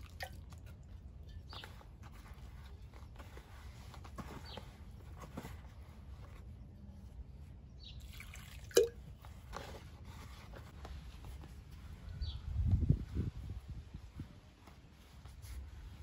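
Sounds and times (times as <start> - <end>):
water pouring from jug: 8.0 - 9.0.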